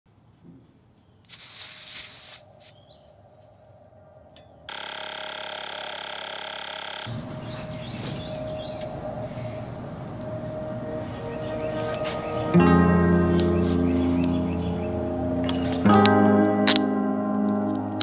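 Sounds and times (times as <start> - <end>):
air hissing from tyre valve: 1.3 - 2.8
electric pump whining: 4.7 - 8.1.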